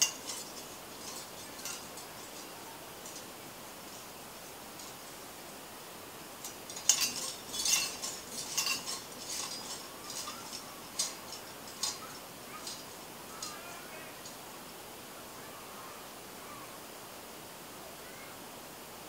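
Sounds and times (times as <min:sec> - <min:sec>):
metal leaves clinking: 0:00.0 - 0:14.8.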